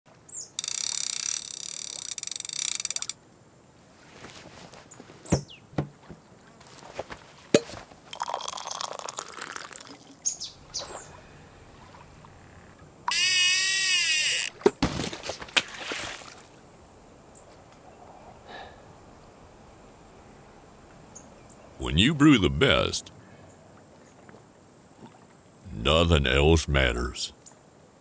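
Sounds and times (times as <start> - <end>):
coffee pouring into mug: 8.1 - 10.0.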